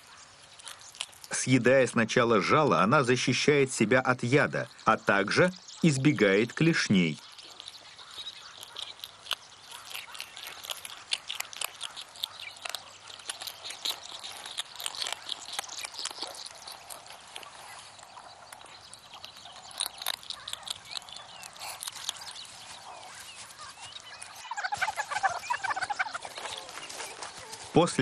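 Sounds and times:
meerkat crunching food: 0.0s - 1.6s, 4.6s - 27.8s
meerkat calls: 7.2s - 27.7s.

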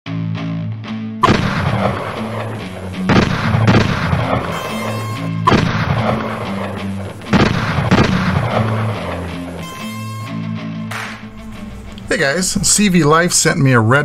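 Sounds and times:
distorted electric guitar music: 0.1s - 12.1s
gunshot sound effects: 1.2s - 9.7s, 10.9s - 11.4s.

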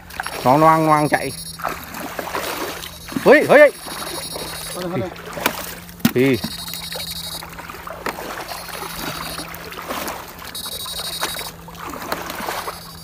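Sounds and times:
steady electric hum: 0.0s - 13.0s
water sloshing and splashing: 0.0s - 13.0s
high-pitched whine: 0.1s - 5.2s, 6.1s - 7.6s, 8.3s - 9.7s, 10.4s - 11.7s, 12.4s - 13.0s.

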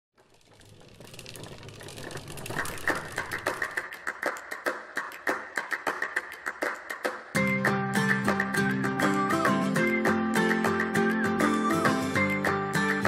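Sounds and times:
rapid irregular clicks: 0.2s - 7.1s.

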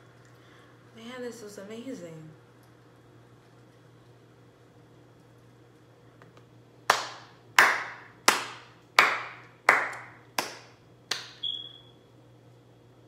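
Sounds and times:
person clapping slowly: 6.9s - 11.4s.

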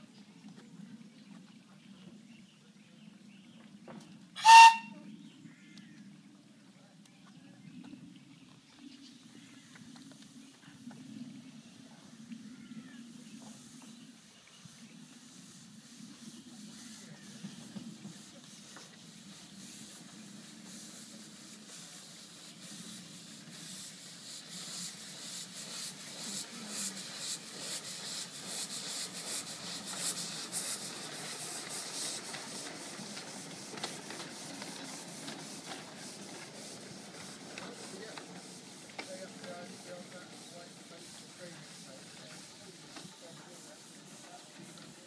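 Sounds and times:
steam hissing: 4.4s - 4.9s, 13.0s - 45.0s
steam locomotive chuffing: 4.4s - 4.9s, 13.4s - 45.0s.

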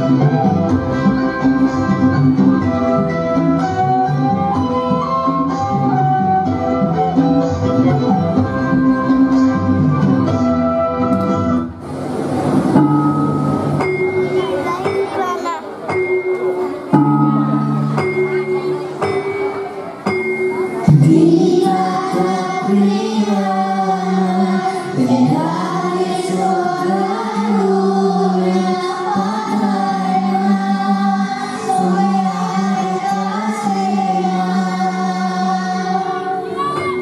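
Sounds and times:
instrumental accompaniment: 0.0s - 37.0s
children singing: 16.9s - 37.0s.

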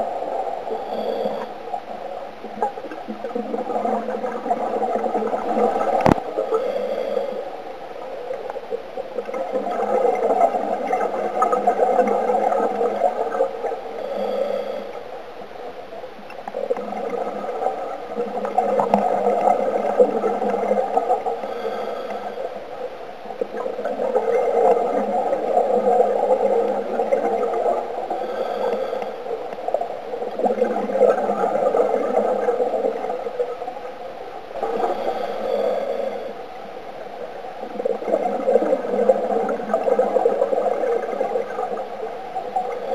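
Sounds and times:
diver inhaling through regulator hiss: 0.7s - 1.7s, 6.0s - 7.6s, 13.8s - 15.2s, 21.1s - 22.8s, 28.0s - 29.6s, 34.7s - 36.4s.

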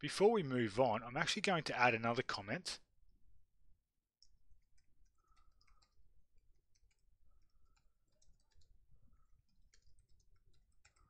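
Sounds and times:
faint keyboard typing: 4.2s - 11.0s.

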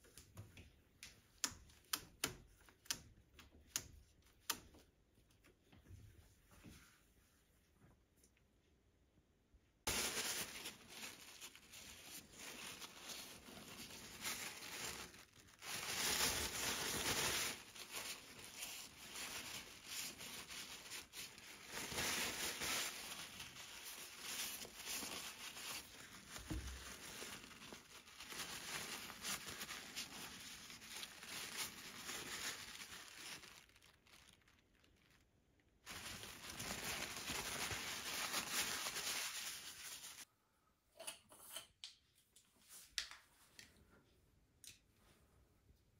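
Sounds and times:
paper towel rustling: 9.9s - 35.2s, 35.8s - 40.3s.

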